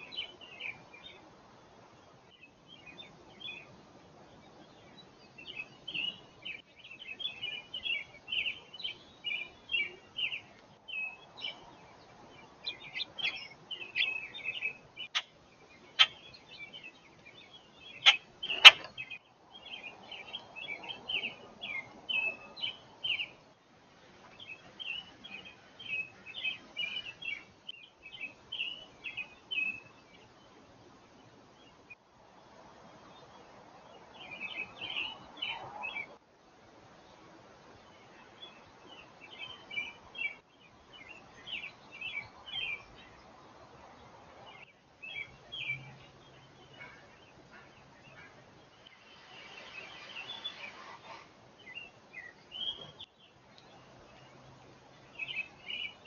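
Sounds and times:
small songbirds chirping: 0:00.0 - 0:56.0.

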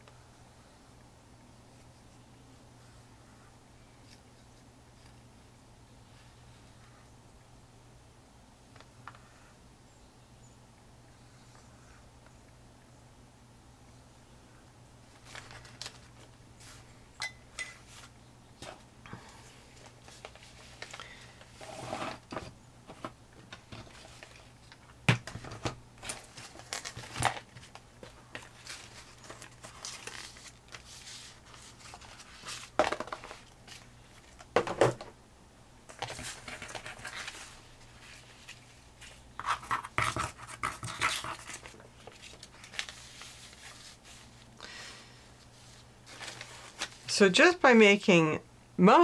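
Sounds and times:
paper rustling and scraping: 0:15.1 - 0:16.9, 0:19.8 - 0:24.7, 0:25.3 - 0:34.5, 0:35.9 - 0:44.5, 0:45.5 - 0:47.1.

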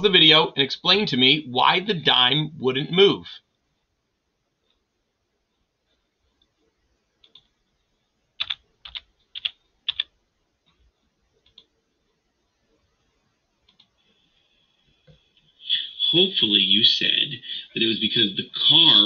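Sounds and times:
computer keyboard typing: 0:08.4 - 0:10.1.

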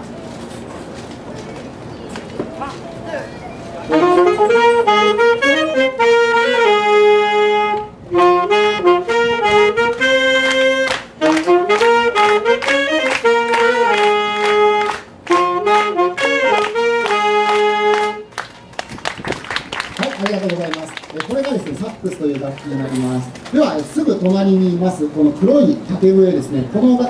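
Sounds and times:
saxophones playing melody: 0:03.8 - 0:18.3.

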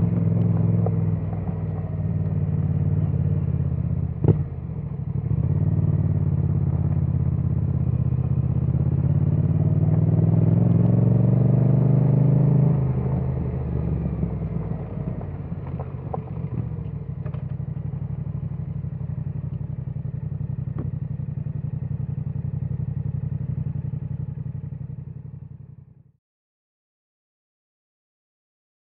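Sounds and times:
motorcycle engine idling: 0:00.0 - 0:09.4, 0:13.4 - 0:26.1.

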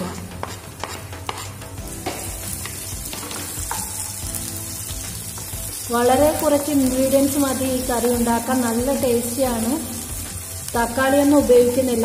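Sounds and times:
wooden spatula tapping and scraping pan: 0:00.0 - 0:04.2
garlic sizzling in hot oil: 0:00.0 - 0:12.0.

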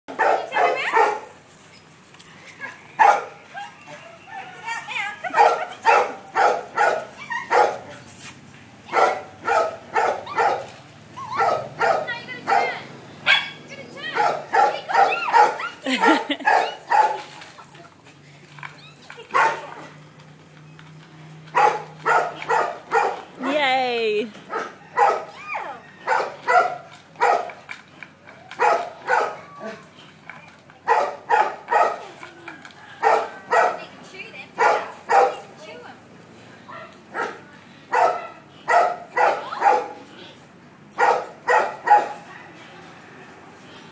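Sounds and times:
dog barking: 0:00.1 - 0:01.2, 0:03.0 - 0:03.7, 0:05.3 - 0:07.8, 0:08.9 - 0:10.7, 0:11.3 - 0:17.2, 0:19.3 - 0:19.6, 0:21.6 - 0:23.2, 0:24.5 - 0:25.3, 0:26.0 - 0:27.5, 0:28.6 - 0:29.4, 0:30.9 - 0:32.0, 0:33.0 - 0:33.8, 0:34.6 - 0:35.5, 0:36.7 - 0:40.0, 0:41.0 - 0:42.6.

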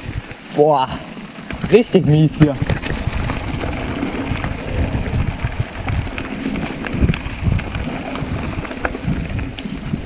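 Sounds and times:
bike rattling over stones: 0:00.0 - 0:10.0
tyre and wind rumble: 0:00.0 - 0:10.0.

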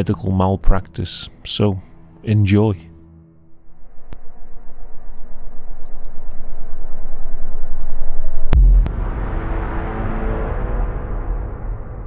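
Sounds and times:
heavy low rumble: 0:03.4 - 0:12.0
sudden hits: 0:08.5 - 0:12.0.

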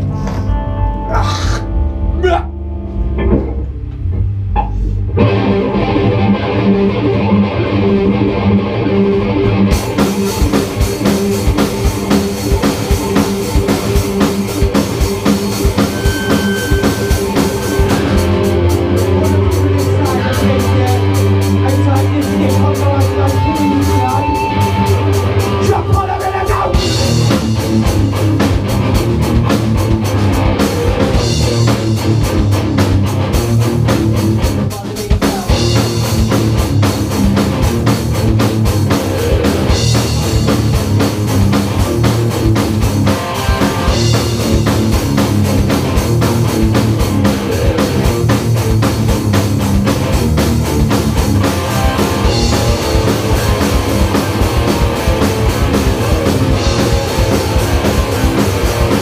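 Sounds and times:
drum kit: 0:00.0 - 0:59.0
electric guitars: 0:00.0 - 0:59.0.

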